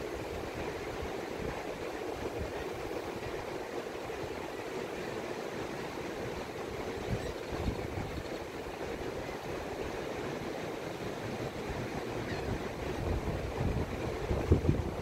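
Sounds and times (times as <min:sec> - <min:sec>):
surf washing onto beach: 0:00.0 - 0:15.0
wind rumbling on microphone: 0:06.2 - 0:15.0.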